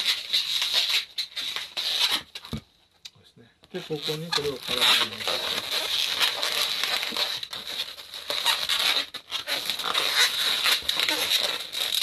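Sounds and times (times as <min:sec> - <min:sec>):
balloons squeaking and rubbing: 0:00.0 - 0:02.7, 0:03.7 - 0:12.0.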